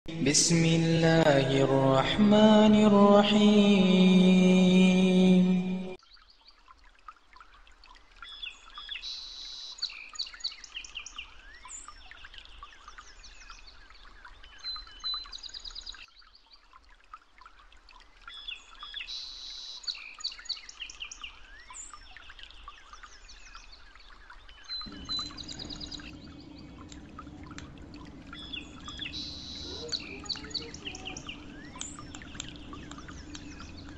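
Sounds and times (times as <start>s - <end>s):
birds chirping and trilling: 18.4s - 33.9s.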